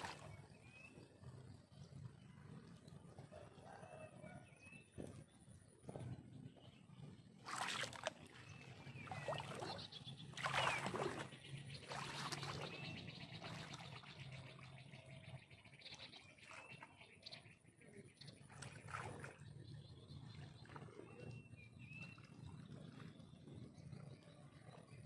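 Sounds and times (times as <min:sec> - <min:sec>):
water splashing and trickling: 0:00.0 - 0:03.8, 0:07.0 - 0:17.3, 0:18.3 - 0:25.0.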